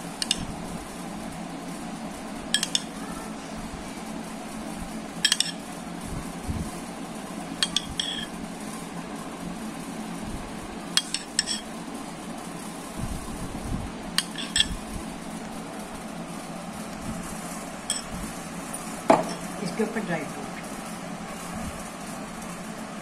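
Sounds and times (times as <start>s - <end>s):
steady low hum: 0.0s - 23.0s
spoon clinking against bowl: 2.6s - 2.9s, 5.2s - 5.6s, 7.6s - 8.3s, 14.2s - 14.8s, 17.9s - 18.1s.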